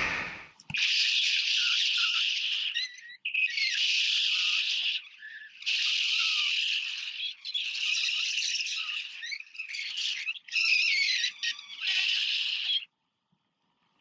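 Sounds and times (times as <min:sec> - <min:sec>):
wind rushing over microphone: 0:00.0 - 0:00.5.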